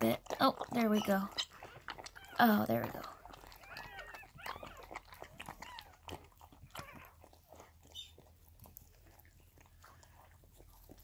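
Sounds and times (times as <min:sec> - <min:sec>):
dog licking wet smacking: 0:00.0 - 0:11.0
puppy squeak: 0:03.5 - 0:06.0, 0:07.9 - 0:08.2.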